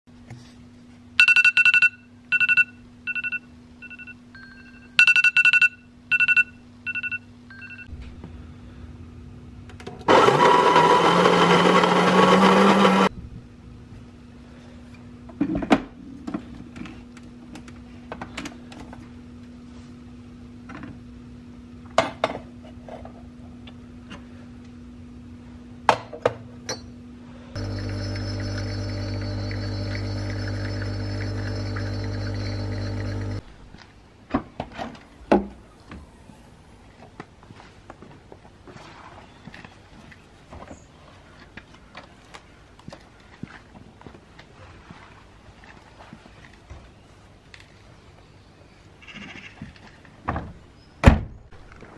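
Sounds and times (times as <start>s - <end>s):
phone alarm beeping: 1.2s - 7.9s
electric coffee grinder: 10.1s - 13.1s, 27.6s - 33.4s.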